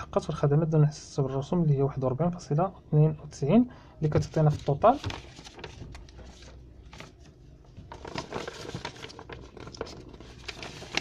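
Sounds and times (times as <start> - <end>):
paper sheets rustling: 4.1 - 11.0.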